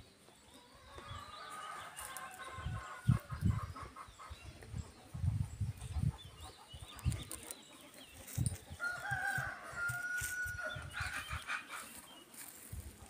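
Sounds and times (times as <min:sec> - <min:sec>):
small birds chirping: 0:00.0 - 0:13.0
rooster crowing: 0:08.8 - 0:10.8.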